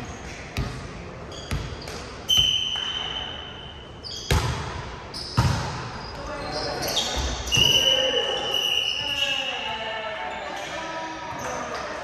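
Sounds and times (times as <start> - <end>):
sneaker squeaks on court: 0.2 - 9.7.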